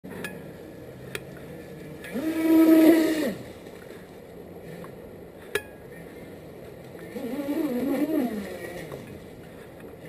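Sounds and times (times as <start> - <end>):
model boat motor whining: 2.1 - 3.4, 7.1 - 9.2.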